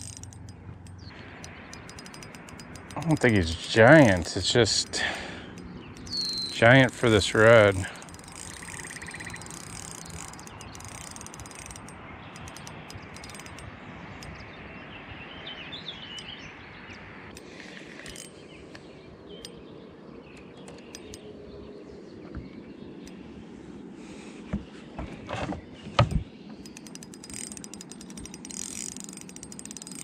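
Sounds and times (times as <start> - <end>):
outdoor background noise: 0.0 - 30.0
faint bird chirps: 5.8 - 6.6, 8.4 - 11.3, 14.1 - 23.4.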